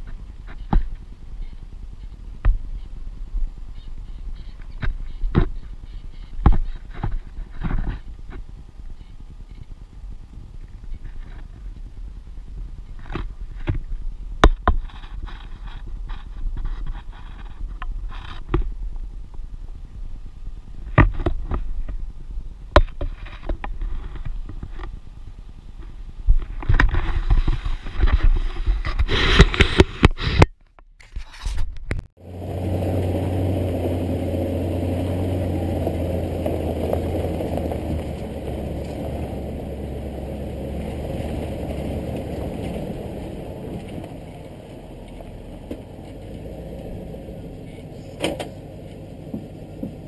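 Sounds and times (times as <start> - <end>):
wind buffeting: 32.2 - 47.7
engine drone: 32.2 - 50.0
tyres rolling over dirt: 32.2 - 50.0.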